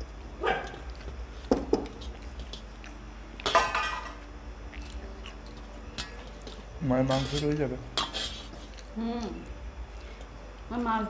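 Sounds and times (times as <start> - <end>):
steel plates and bowls clinking: 3.4 - 4.2.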